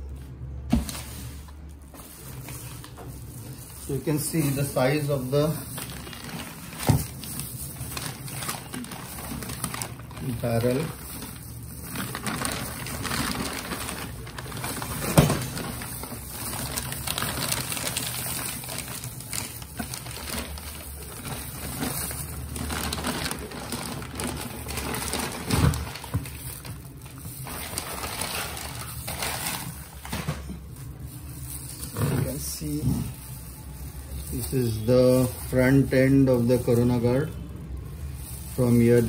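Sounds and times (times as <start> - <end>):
plastic wrapping crinkling: 0.0 - 39.0.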